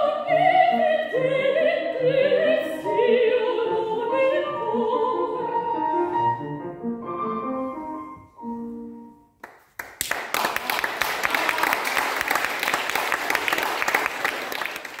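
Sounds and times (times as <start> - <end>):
audience applause: 9.8 - 15.0.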